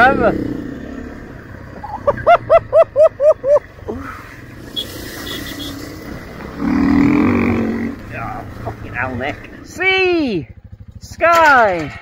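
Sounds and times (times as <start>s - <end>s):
man laughing loudly: 1.8s - 4.0s.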